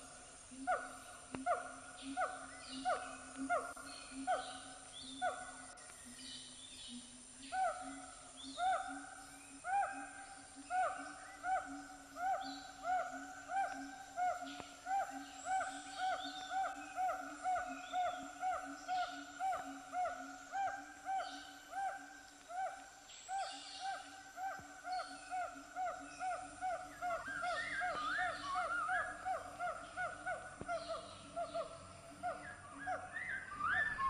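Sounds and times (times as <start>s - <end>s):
repeated hooting animal call: 7.5s - 34.0s.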